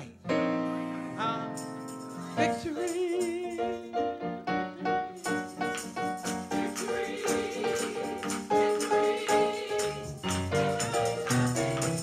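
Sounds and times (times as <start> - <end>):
keyboard accompaniment: 0.0 - 12.0
tambourine: 1.2 - 12.0
gospel choir singing: 2.4 - 12.0
hand claps: 9.8 - 12.0.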